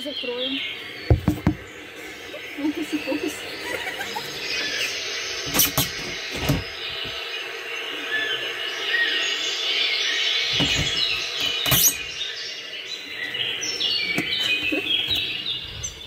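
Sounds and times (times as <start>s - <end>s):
birdsong chirping: 0.0s - 16.0s
knocks from handling window unit: 1.1s - 1.6s, 5.4s - 7.2s, 10.5s - 12.1s.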